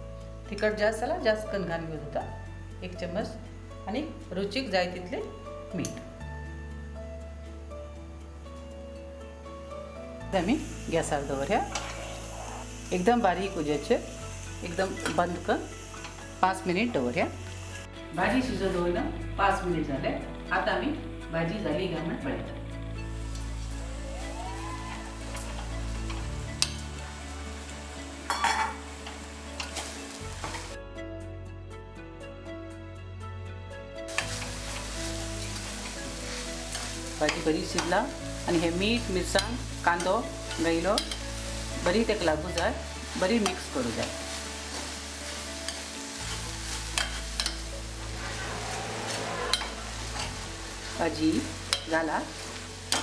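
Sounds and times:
low sizzle: 0.0s - 30.8s, 33.9s - 53.0s
metal spoon scraping a pot: 11.6s - 12.6s, 48.2s - 50.4s
spoon clicking on pot: 41.0s - 41.2s.

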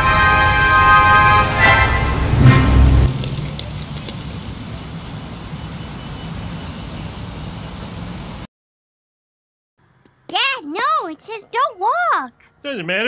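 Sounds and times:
music: 0.0s - 2.6s
city street traffic: 0.0s - 8.5s, 9.8s - 13.0s.

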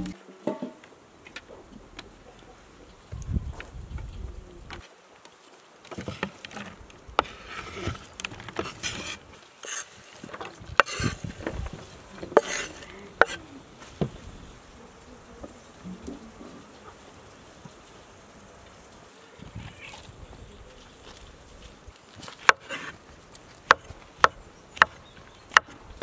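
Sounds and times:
onion pieces sliding: 7.2s - 11.7s, 12.3s - 13.5s.

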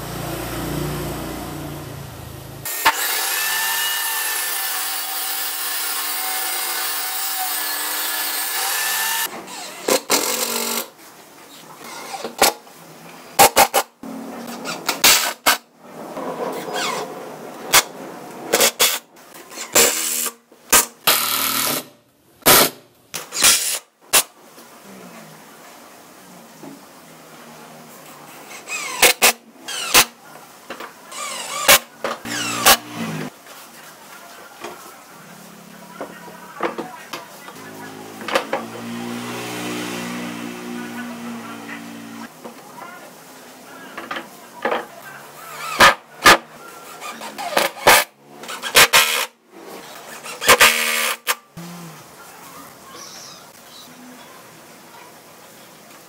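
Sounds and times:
cordless drill driving screw: 31.2s - 32.8s
cordless driver motor whine: 32.3s - 33.3s.

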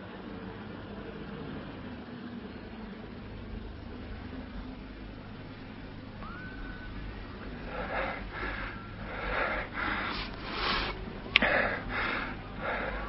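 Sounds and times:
low recording hum: 0.0s - 13.0s
person breathing hard and wheezy: 6.7s - 13.0s.

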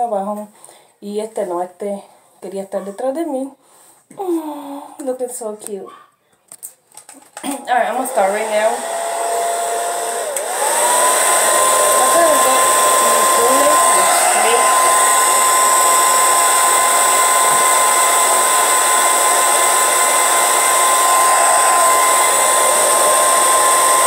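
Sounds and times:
hair dryer running: 7.7s - 24.0s.

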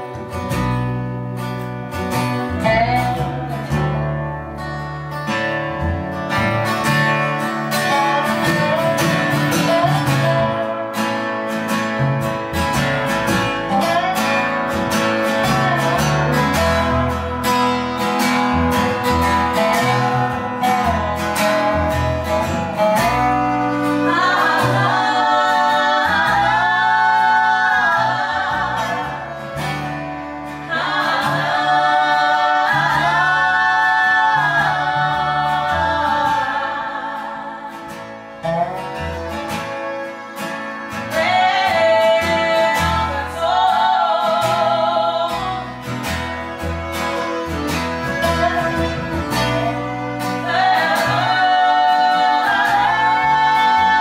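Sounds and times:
bowed fiddle: 0.0s - 54.0s
strummed acoustic guitar: 0.0s - 54.0s
upright bass: 0.0s - 54.0s
woman singing: 2.4s - 4.0s, 7.7s - 11.1s, 13.2s - 17.8s, 18.4s - 39.5s, 40.9s - 46.2s, 47.2s - 54.0s.

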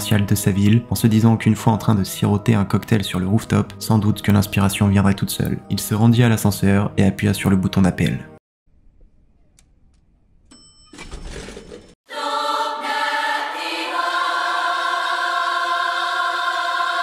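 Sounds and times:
lift arrival chime: 10.5s - 12.0s
choir singing held chord: 12.1s - 17.0s.

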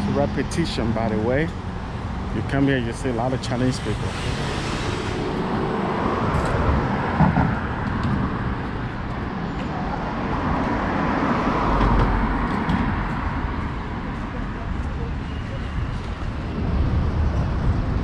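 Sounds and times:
cars passing by: 0.0s - 18.0s.

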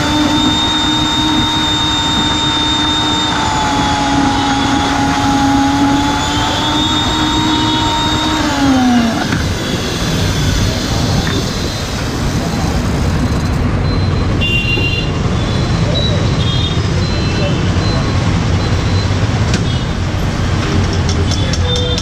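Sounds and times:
blender motor whining: 0.0s - 13.6s.

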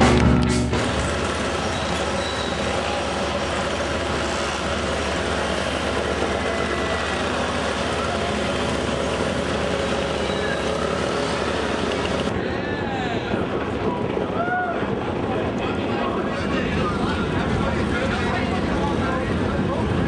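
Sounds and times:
mopeds moving off: 0.8s - 12.3s
faint voices: 5.5s - 20.0s.

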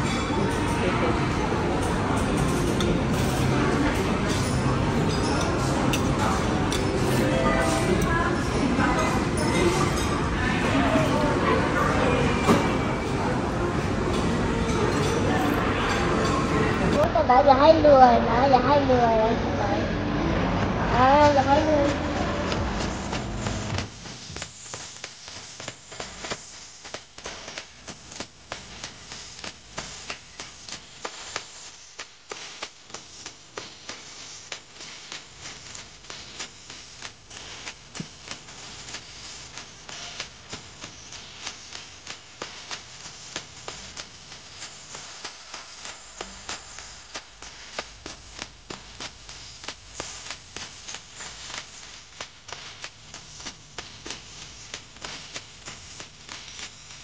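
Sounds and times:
steady hiss: 20.6s - 57.0s.

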